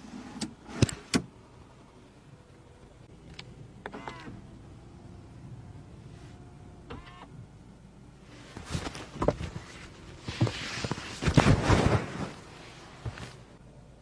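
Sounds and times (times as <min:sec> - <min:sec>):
microphone rustling: 0:08.4 - 0:13.5.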